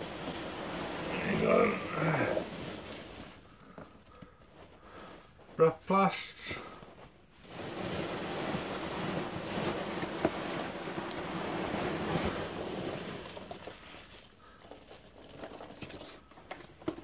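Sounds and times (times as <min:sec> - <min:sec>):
rustle of packing material: 0:00.0 - 0:05.7, 0:06.6 - 0:17.0
small clicks and knocks of plastic: 0:13.6 - 0:17.0.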